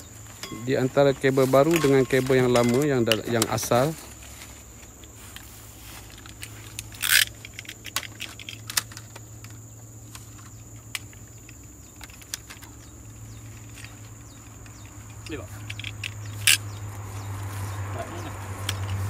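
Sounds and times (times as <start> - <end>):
cable stripper clicking and crunching: 6.4 - 10.3.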